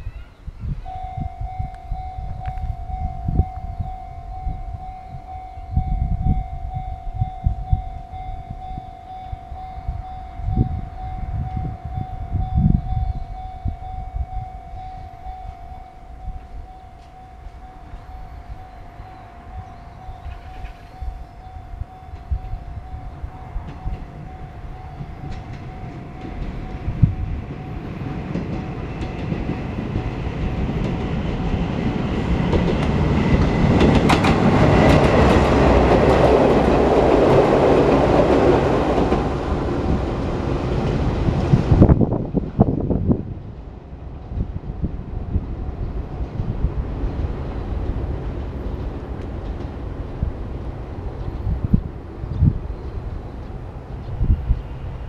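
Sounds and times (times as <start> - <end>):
electric train passing: 0.0 - 55.0
level crossing bell ringing: 0.8 - 32.5
wheels clicking over rail joints: 16.9 - 41.6.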